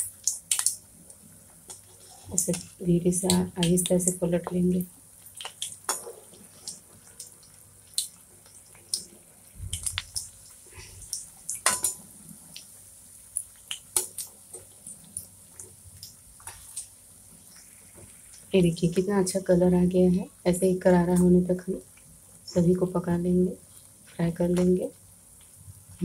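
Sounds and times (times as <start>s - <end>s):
oil crackling and popping: 0.0s - 18.6s
bread frying in hot oil: 0.0s - 26.0s
metal skimmer clinking on pan: 11.6s - 12.0s.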